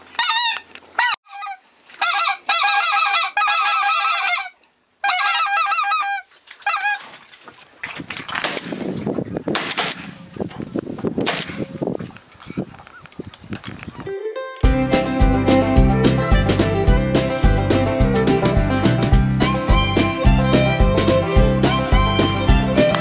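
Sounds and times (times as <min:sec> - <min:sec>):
goose call honks: 0:00.2 - 0:07.1.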